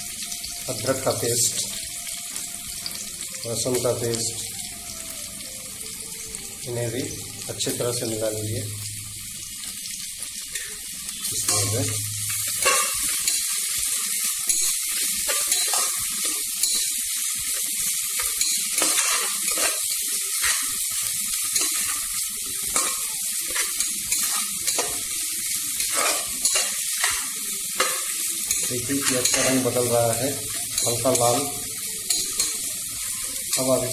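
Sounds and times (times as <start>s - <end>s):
onions sizzling in hot oil: 0.0s - 33.9s
metal ladle scraping a pot: 18.4s - 20.8s, 25.8s - 27.2s, 27.8s - 29.8s.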